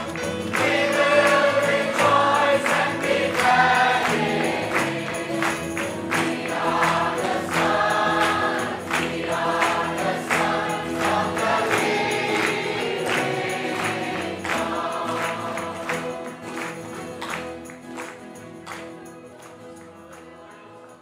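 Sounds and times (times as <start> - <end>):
steady percussion beat: 0.0 - 16.3
gospel choir singing: 0.0 - 17.8, 19.0 - 21.0.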